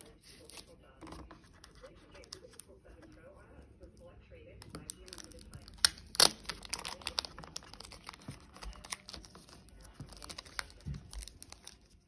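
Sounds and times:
packaging crinkling and rustling: 4.9 - 12.0.

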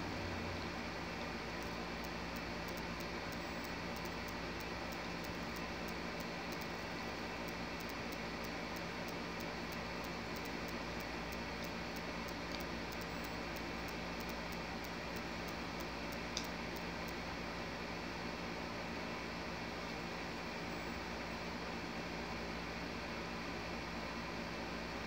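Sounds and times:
room tone hiss: 0.0 - 25.0
faint regular ticking: 1.1 - 17.4.

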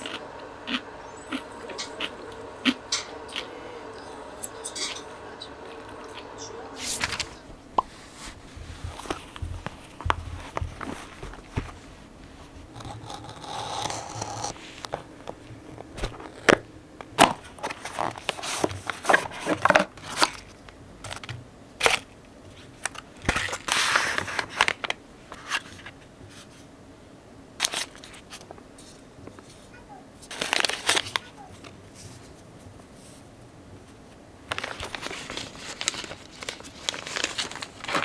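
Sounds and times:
dishes and utensils clicking: 4.4 - 5.2
rustling or crinkling: 5.6 - 26.7, 27.6 - 38.0.

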